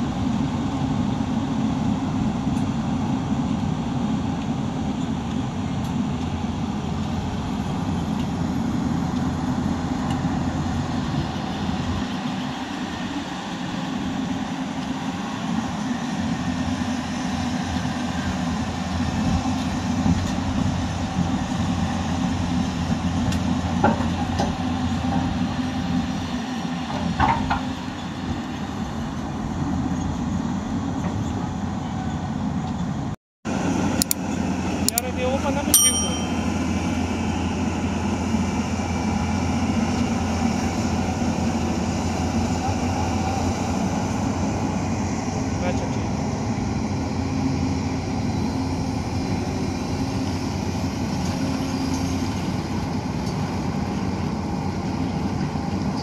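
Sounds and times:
diesel engine low rumble: 0:00.0 - 0:56.0
metallic clanks: 0:35.8 - 0:36.4.

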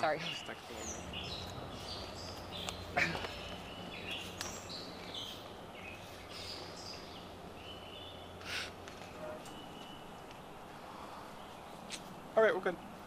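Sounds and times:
low steady hum: 0:00.0 - 0:13.0
songbirds chirping: 0:00.0 - 0:13.0.

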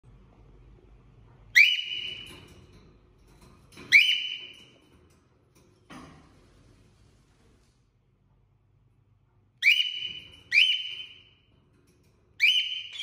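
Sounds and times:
cockatiel whistled calls: 0:01.6 - 0:02.3, 0:09.6 - 0:11.3, 0:12.4 - 0:13.0.

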